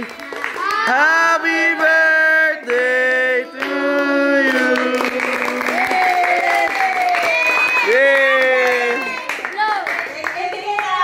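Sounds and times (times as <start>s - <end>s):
group singing birthday song: 0.0s - 6.8s.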